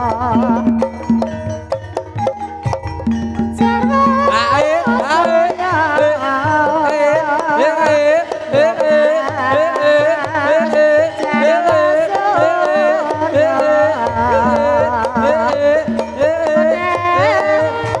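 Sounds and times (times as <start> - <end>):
gamelan: 0.0 - 18.0
hand drum strokes: 0.0 - 18.0
woman singing ornamented melody: 3.6 - 7.9.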